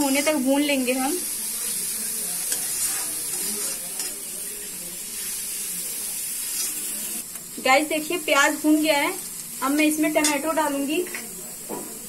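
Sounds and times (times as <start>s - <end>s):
onions sizzling in pan: 0.0s - 12.0s
spatula scraping pan: 2.4s - 4.3s.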